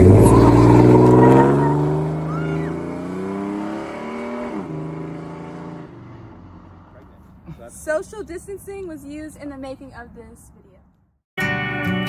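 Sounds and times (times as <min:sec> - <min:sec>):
pickup truck engine driving away: 0:00.0 - 0:07.0.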